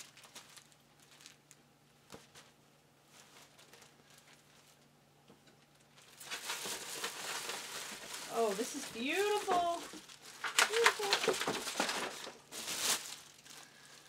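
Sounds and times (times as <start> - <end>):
plastic wrapping crinkling: 0.0 - 5.0, 5.6 - 14.0
low steady hum: 0.0 - 14.0
fabric rustling: 6.1 - 14.0.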